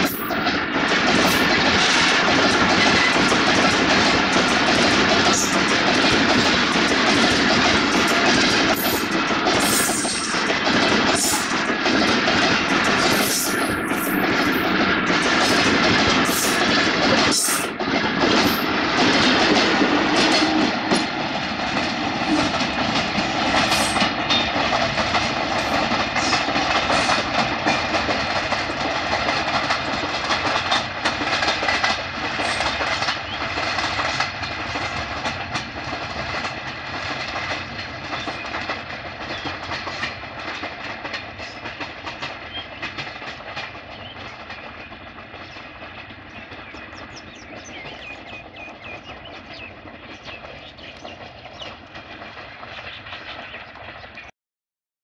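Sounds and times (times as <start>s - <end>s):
train wheels clattering on rails: 0.0s - 54.3s.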